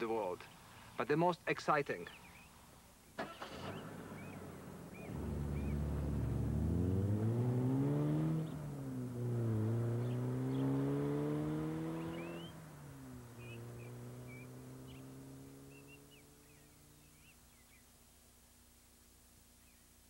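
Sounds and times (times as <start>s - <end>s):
car engine accelerating through gears: 3.2s - 17.3s.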